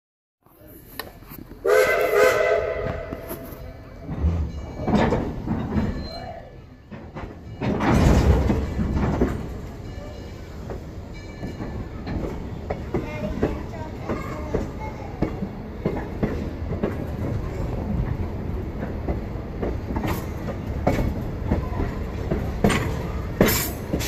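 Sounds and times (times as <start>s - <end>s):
train rumbling: 0.4s - 24.0s
steam locomotive chime whistle: 1.6s - 3.9s
steam locomotive exhaust chuffs: 22.3s - 24.0s.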